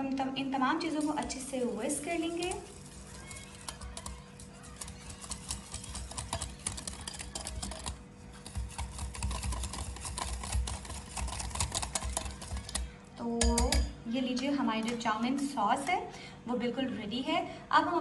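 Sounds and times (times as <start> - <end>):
whisk clicking against glass bowl: 0.8 - 14.0.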